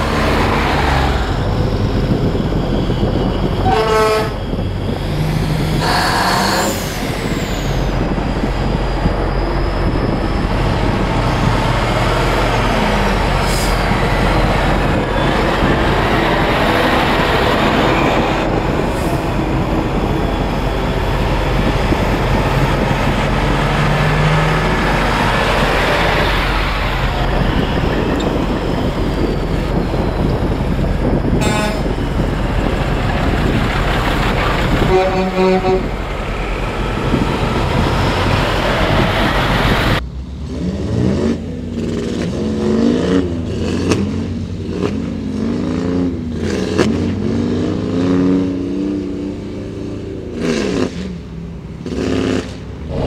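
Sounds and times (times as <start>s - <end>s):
diesel trucks driving past: 0.0s - 53.0s
truck horn blasts: 3.6s - 4.6s, 5.8s - 6.8s, 31.3s - 32.0s, 34.8s - 36.0s.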